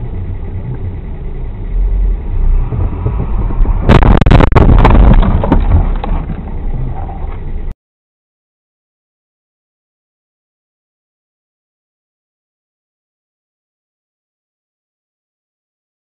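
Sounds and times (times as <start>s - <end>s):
vehicle rumble: 0.0s - 7.8s
car collision bangs: 2.6s - 6.6s.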